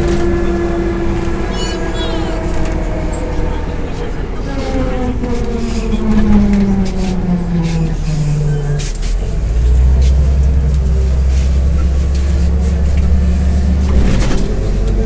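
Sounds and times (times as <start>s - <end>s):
bus diesel engine droning: 0.0s - 15.0s.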